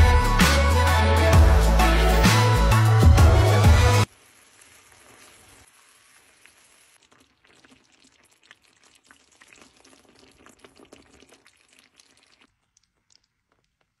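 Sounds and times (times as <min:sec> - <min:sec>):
sauce simmering and popping: 0:04.1 - 0:14.0.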